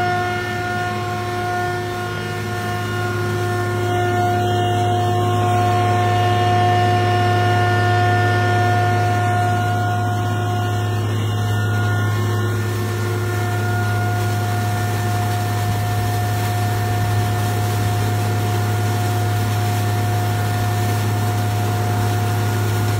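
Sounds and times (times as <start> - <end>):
truck engine and pump droning: 0.0 - 22.9
hiss of water spray: 12.6 - 22.9.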